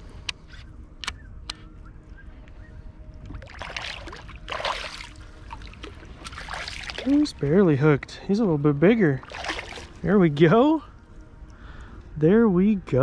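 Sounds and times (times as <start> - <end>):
water splashing against kayak: 3.3 - 7.5, 9.2 - 10.1.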